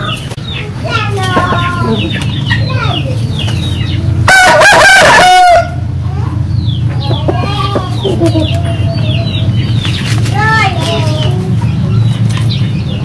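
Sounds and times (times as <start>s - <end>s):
rooster crowing: 4.3s - 5.8s.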